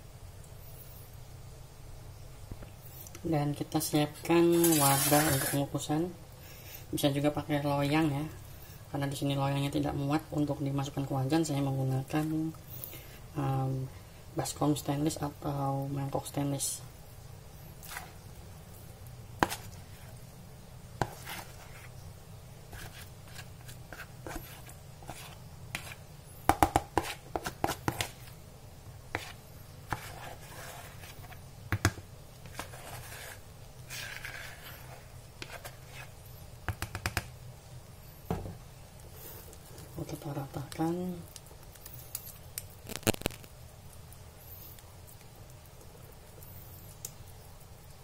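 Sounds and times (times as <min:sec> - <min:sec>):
low steady hum: 0:00.0 - 0:48.0
soft scraping of dough: 0:04.4 - 0:05.8, 0:17.7 - 0:18.8, 0:19.4 - 0:20.4, 0:21.0 - 0:22.1, 0:22.7 - 0:26.1, 0:26.8 - 0:28.4, 0:29.1 - 0:31.5, 0:32.4 - 0:36.5, 0:39.0 - 0:40.7.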